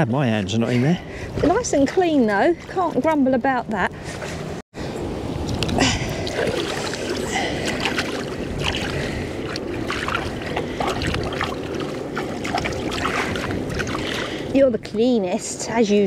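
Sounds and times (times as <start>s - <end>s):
water lapping and sloshing: 1.0s - 16.0s
small splashes: 5.5s - 14.5s.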